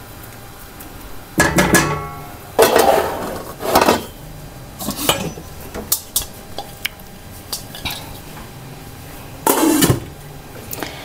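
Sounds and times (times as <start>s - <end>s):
spoon clanking on metal pot: 1.4s - 2.9s.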